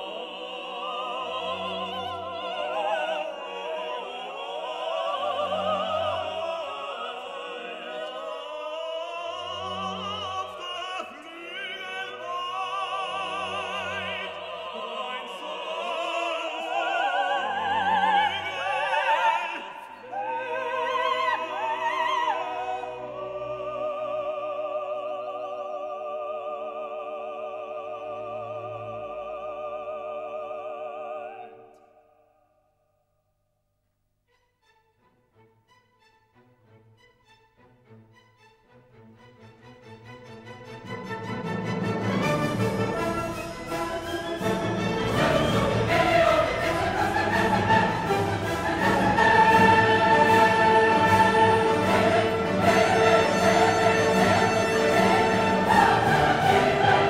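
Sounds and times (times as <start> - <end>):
operatic singing: 0.0 - 32.3, 37.6 - 57.0
orchestral accompaniment: 34.3 - 57.0.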